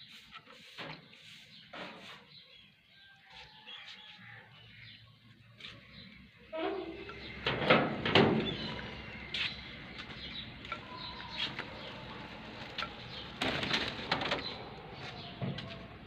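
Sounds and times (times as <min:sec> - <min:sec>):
soft low bird calls: 0:08.3 - 0:16.0.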